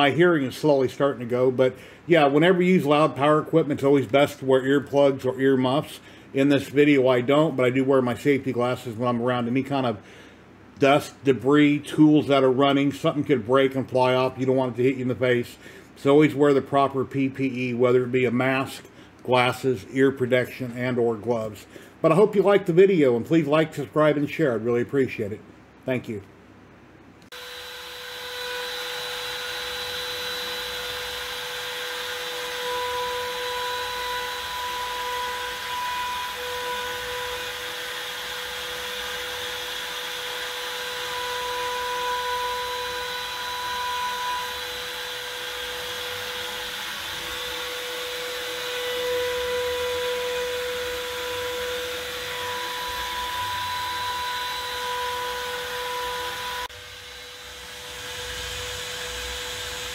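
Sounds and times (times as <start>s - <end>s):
trim router whining: 27.2s - 59.9s
router carving wood: 27.3s - 59.9s.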